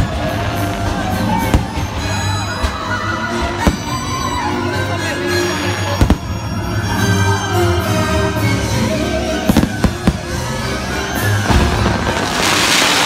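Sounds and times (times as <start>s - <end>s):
show music: 0.0s - 13.0s.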